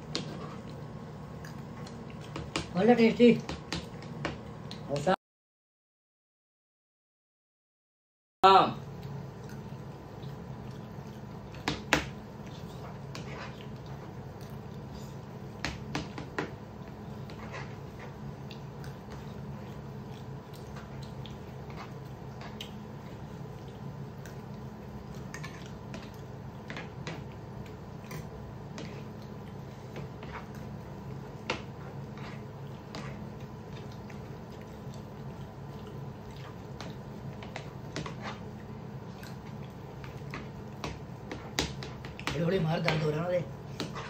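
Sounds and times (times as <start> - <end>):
steady low hum: 0.0 - 5.2, 8.4 - 44.0
eating sounds: 0.5 - 2.4, 9.0 - 15.3, 16.8 - 41.3.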